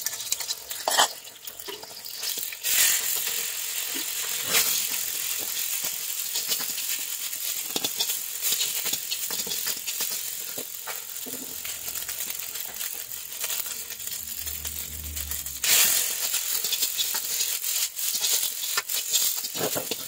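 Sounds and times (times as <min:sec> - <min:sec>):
high sizzle: 0:00.0 - 0:20.0
metal ladle scraping a wok: 0:00.4 - 0:01.9, 0:07.8 - 0:20.0.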